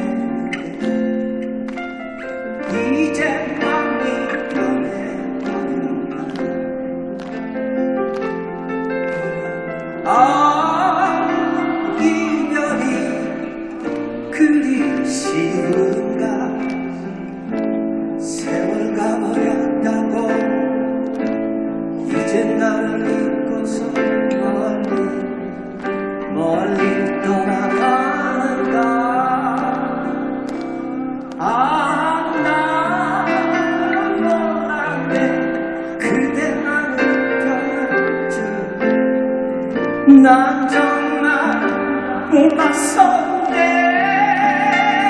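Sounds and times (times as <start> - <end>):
band backing: 0.0 - 45.0
man singing pop ballad: 0.0 - 45.0.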